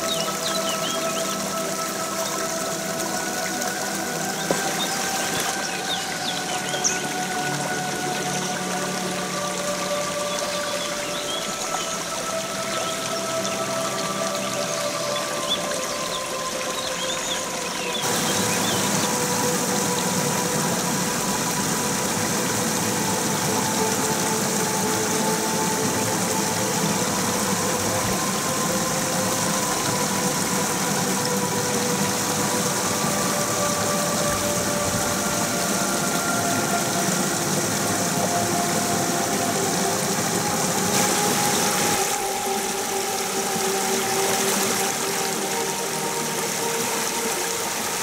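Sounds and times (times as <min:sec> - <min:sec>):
stream rushing over rocks: 0:00.0 - 0:48.0.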